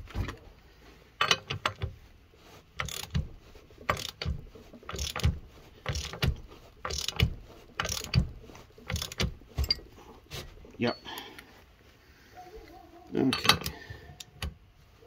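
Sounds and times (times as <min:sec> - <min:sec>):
ratchet wrench clicking: 0:02.8 - 0:03.3, 0:03.9 - 0:09.8.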